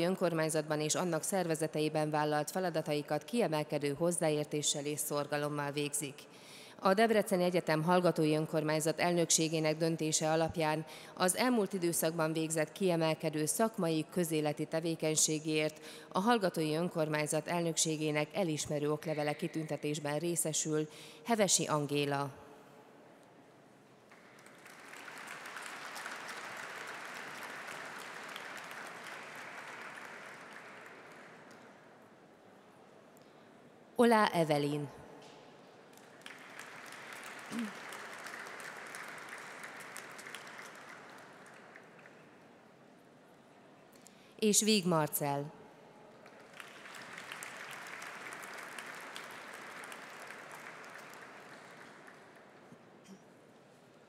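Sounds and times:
audience applauding: 24.1 - 31.6, 36.0 - 42.2, 46.2 - 52.6.

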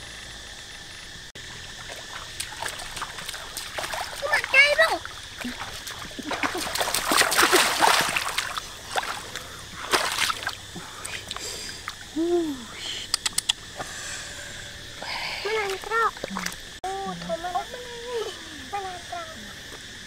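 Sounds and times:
water splashing: 1.4 - 12.2, 15.4 - 16.8
sharp clicks: 13.0 - 13.6.

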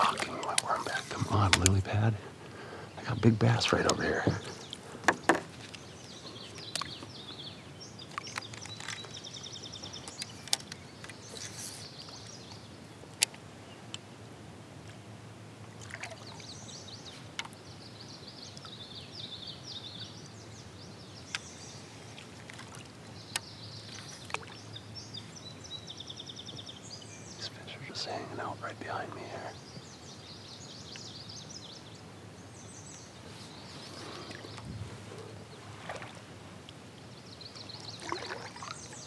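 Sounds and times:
birds chirping: 0.0 - 14.3, 14.9 - 39.0
water sloshing off paddle: 35.6 - 36.4, 37.9 - 39.0.

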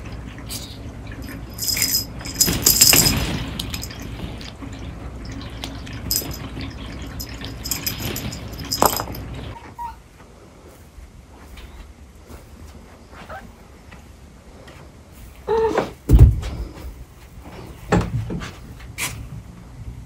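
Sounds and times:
low steady hum: 0.0 - 9.6
plastic balls clattering: 1.3 - 4.0, 7.3 - 9.2.

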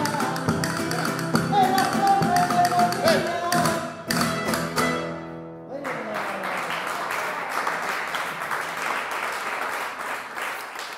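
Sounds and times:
guitars and violin playing: 0.0 - 5.8
audience applause: 5.8 - 10.9.

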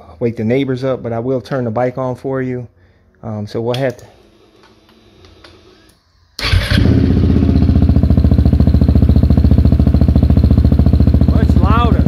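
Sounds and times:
motorcycle engine starting and idling: 6.4 - 12.0.

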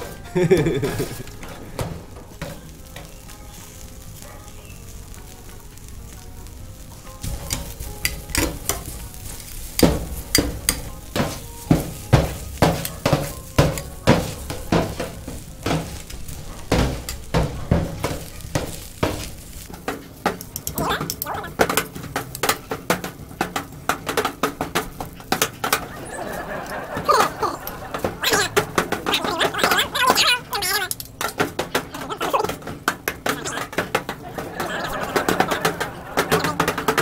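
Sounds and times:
food sizzling: 0.0 - 37.0
metal utensil scraping steel: 7.2 - 37.0.

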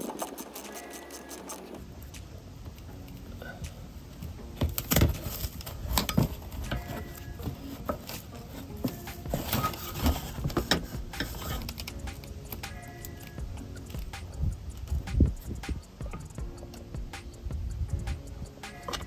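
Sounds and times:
metal tools clicking and scraping: 0.0 - 1.9, 4.8 - 16.9.

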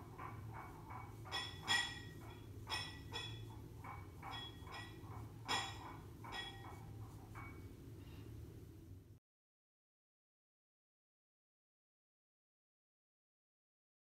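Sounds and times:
steady low hum: 0.0 - 9.2.

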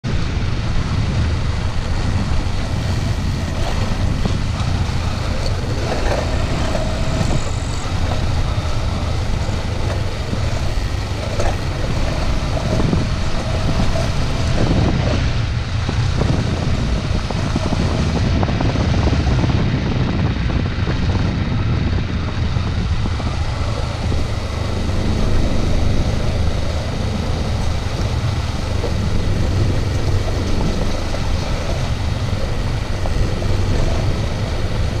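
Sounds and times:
motorcycle engine rumbling: 0.0 - 35.0.

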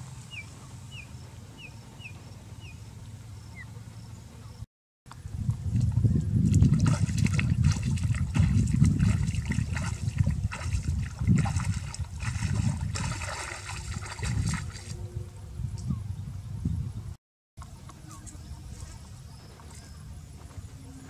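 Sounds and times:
person wading through water: 6.4 - 15.0.

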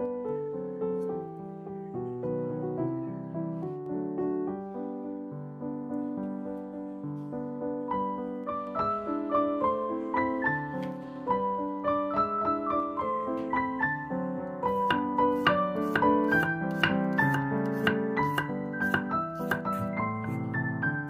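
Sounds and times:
gentle piano music: 0.0 - 21.0
knife cutting on wooden board: 14.7 - 20.4.

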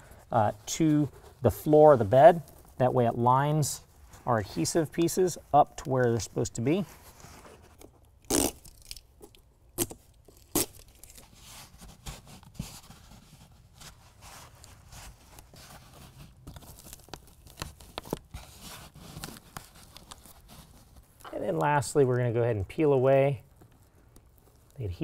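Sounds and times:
soft rustling: 0.0 - 8.1, 10.2 - 25.0.

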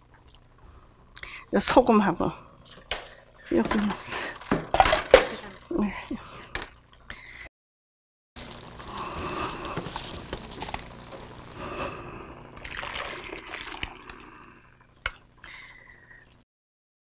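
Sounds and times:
liquid pouring into glass bowl: 12.6 - 14.5.

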